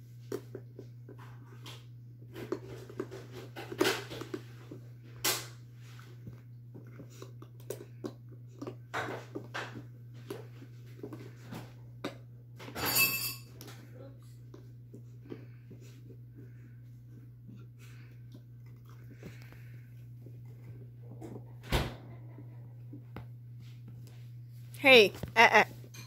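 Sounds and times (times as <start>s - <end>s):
puppy chewing crackly toy: 0.0s - 12.6s, 13.6s - 21.6s.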